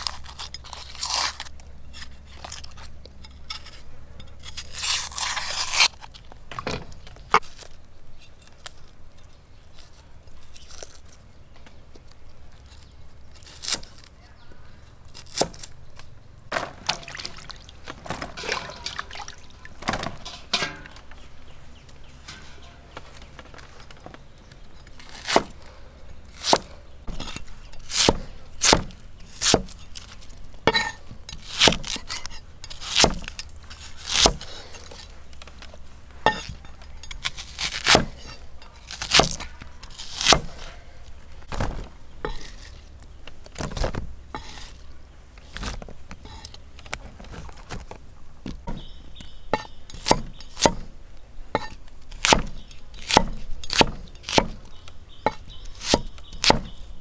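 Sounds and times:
cooking utensils knocking: 0:19.8 - 0:21.1.

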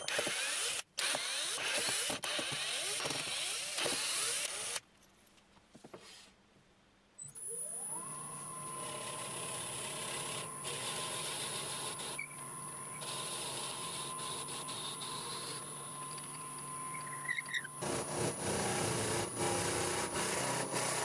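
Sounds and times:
drill bit boring into wood: 0:00.0 - 0:04.8, 0:07.6 - 0:21.0
lathe motor whine: 0:07.6 - 0:21.0.

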